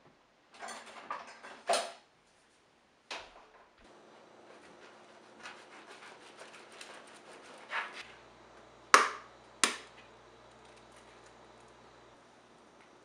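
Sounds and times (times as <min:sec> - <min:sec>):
hands rubbing and scraping: 0:04.4 - 0:08.2.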